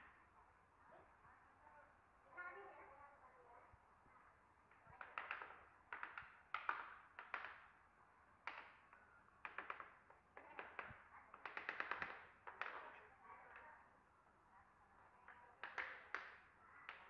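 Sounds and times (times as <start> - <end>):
hammer taps on wooden planks: 4.7 - 7.7, 8.4 - 12.9.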